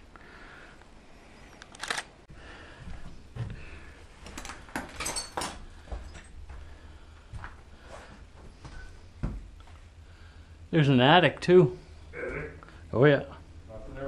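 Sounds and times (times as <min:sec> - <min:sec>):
footsteps on debris-covered floor: 0:02.8 - 0:09.8.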